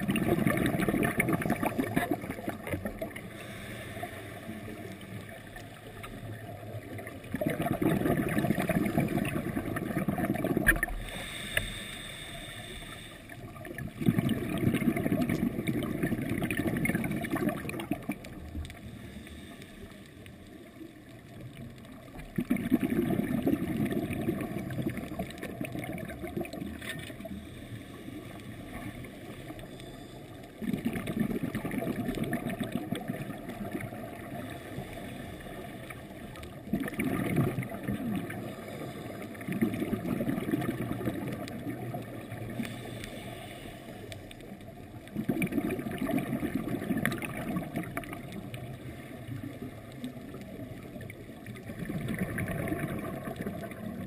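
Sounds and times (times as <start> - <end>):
underwater bubbles burbling: 0.0 - 11.8, 12.4 - 54.0
diver breathing slowly: 3.0 - 6.8, 9.4 - 15.9, 18.6 - 21.1, 27.0 - 32.5, 34.0 - 36.7, 38.2 - 45.2.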